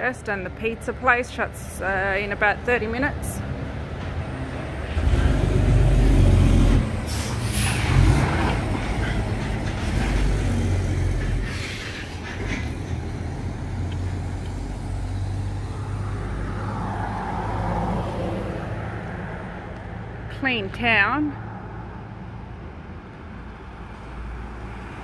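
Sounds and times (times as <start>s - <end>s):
truck diesel engine rumbling: 0.0s - 16.6s
car passing: 3.4s - 20.3s
air brake hisses: 7.1s - 7.9s, 11.4s - 12.2s.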